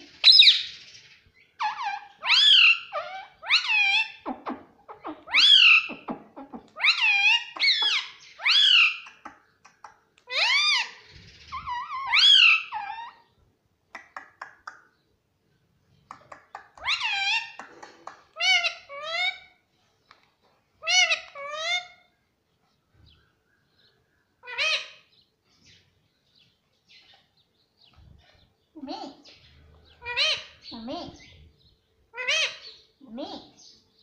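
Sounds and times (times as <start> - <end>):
parrot calling: 1.6 - 9.2, 10.2 - 13.3, 16.6 - 19.6, 20.8 - 22.1, 24.4 - 25.1, 28.8 - 31.4, 32.1 - 33.6.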